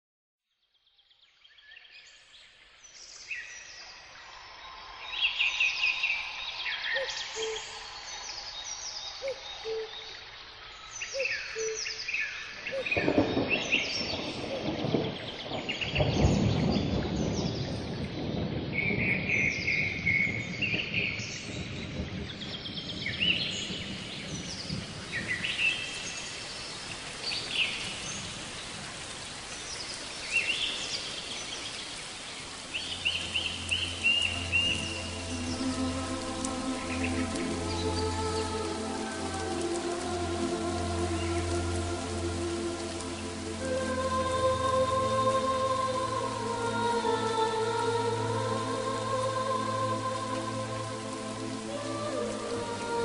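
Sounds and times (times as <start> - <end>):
birds chirping and singing: 5.0 - 28.3, 29.7 - 52.9
wind rumble on microphone: 12.7 - 53.0.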